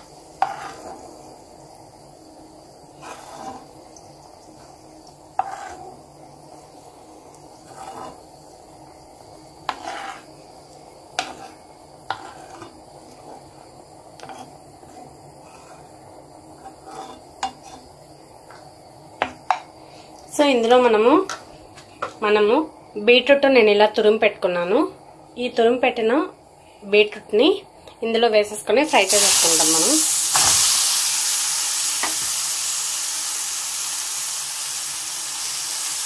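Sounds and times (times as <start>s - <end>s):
ghee sizzling in a pan: 0.0s - 22.8s, 28.7s - 36.0s.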